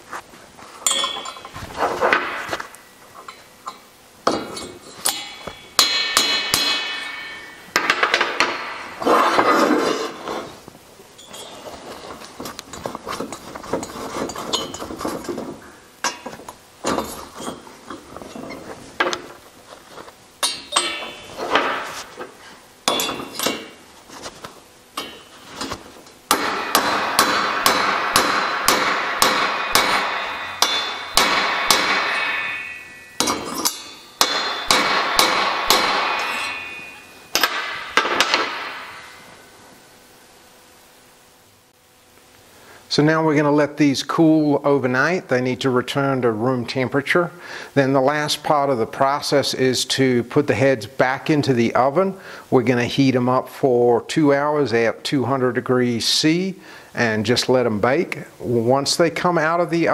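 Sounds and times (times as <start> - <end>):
knocks and clinks: 0.8 - 2.2, 11.2 - 11.8, 12.4 - 15.4, 20.4 - 21.9, 22.9 - 23.7, 29.6 - 39.2
hammer striking metal: 0.8 - 2.5, 3.3 - 9.0, 20.4 - 22.1, 22.8 - 23.8, 25.0 - 25.3, 26.3 - 39.4.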